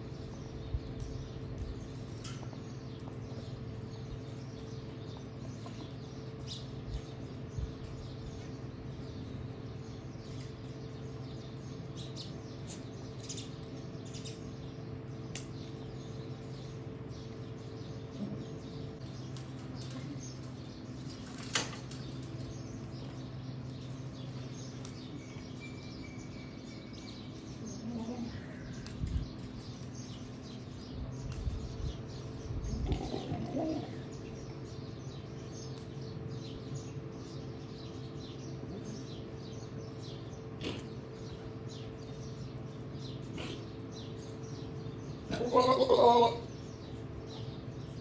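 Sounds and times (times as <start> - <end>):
small birds chirping: 0.0 - 48.0
steady low hum: 0.0 - 48.0
loud bird call: 45.2 - 46.8.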